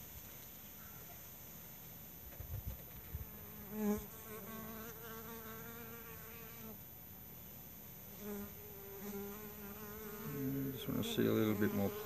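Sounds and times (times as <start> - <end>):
bees buzzing: 8.2 - 12.0.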